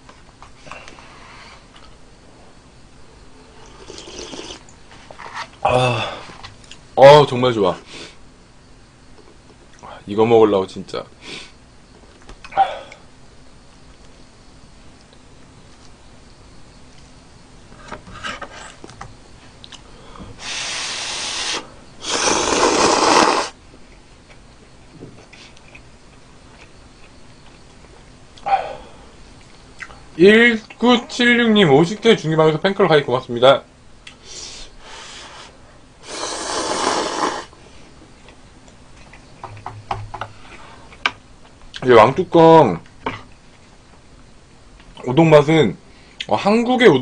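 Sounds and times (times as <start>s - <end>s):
person slurping noodles: 3.6s - 4.6s, 20.4s - 23.6s, 36.0s - 37.5s
chewing with wet mouth clicks: 25.2s - 27.8s, 29.4s - 30.0s.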